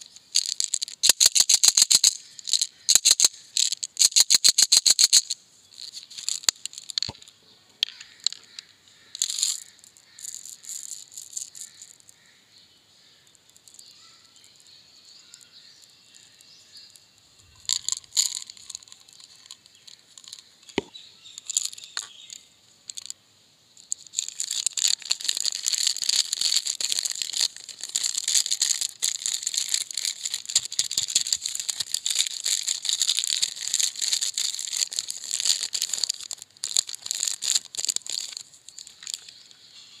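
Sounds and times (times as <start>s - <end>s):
chocolate wrapper crinkling: 0.0s - 7.2s, 7.9s - 12.0s, 17.5s - 20.8s, 23.8s - 39.4s
brief rustles and clicks: 0.0s - 12.0s, 23.8s - 40.0s.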